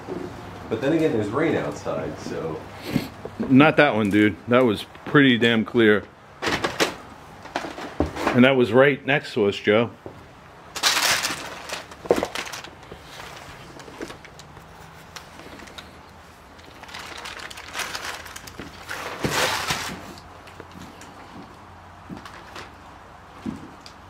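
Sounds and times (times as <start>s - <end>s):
clothing rustle: 10.8s - 23.8s
footsteps crunching on debris: 10.8s - 23.8s.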